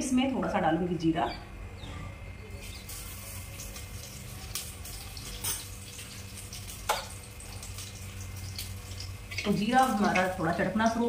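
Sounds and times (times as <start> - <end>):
seeds sizzling in hot oil: 2.6 - 11.0.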